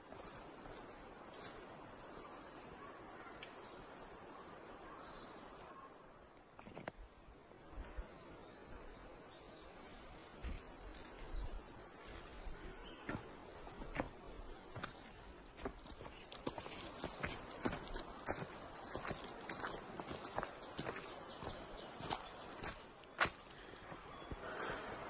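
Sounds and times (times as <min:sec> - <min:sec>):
birds chirping: 0:00.0 - 0:25.0
footsteps on forest floor: 0:09.8 - 0:24.8.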